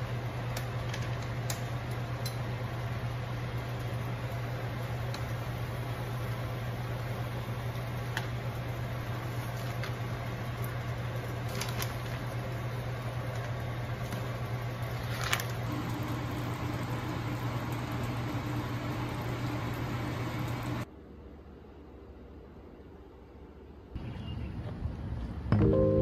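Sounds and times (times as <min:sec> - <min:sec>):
kitchen fan humming: 0:00.0 - 0:23.9.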